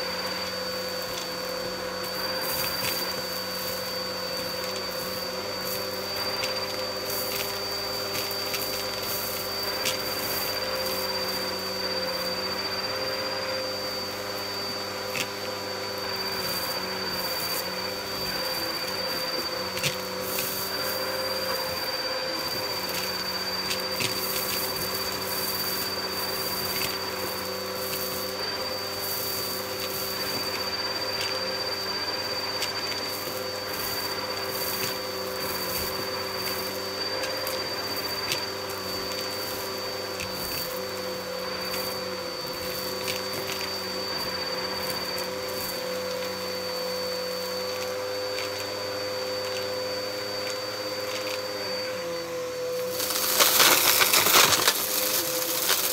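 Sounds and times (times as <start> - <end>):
vacuum cleaner motor whine: 0.0 - 55.9
debris rattling up a hose: 52.8 - 55.9.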